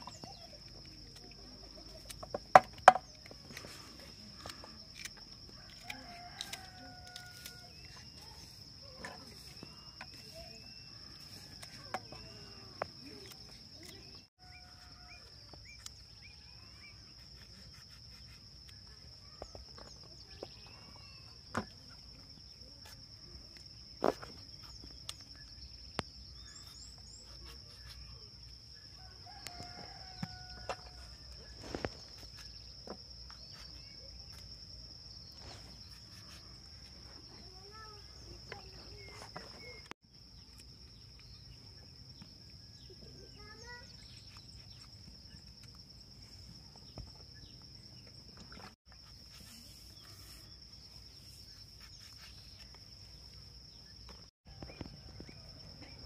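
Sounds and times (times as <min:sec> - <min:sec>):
knife slicing okra: 0:04.9 - 0:09.2, 0:17.1 - 0:18.8.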